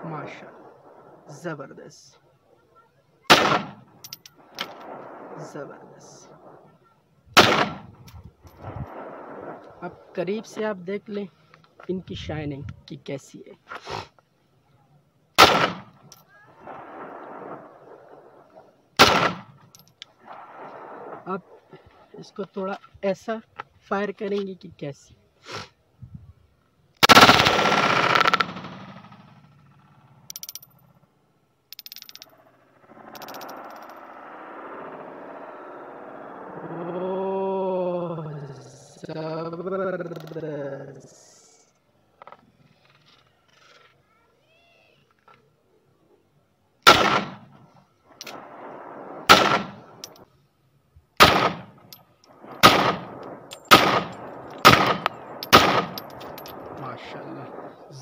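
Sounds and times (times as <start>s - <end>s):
pistol firing rapid shots: 3.3s - 3.8s, 15.4s - 15.8s, 19.0s - 19.4s, 46.9s - 47.4s, 49.3s - 49.9s, 51.2s - 51.7s, 52.6s - 56.0s
pistol shots with echo: 3.3s - 5.4s, 7.4s - 7.9s, 15.4s - 15.9s, 19.0s - 19.5s, 46.8s - 47.5s, 48.3s - 50.0s, 51.2s - 57.9s.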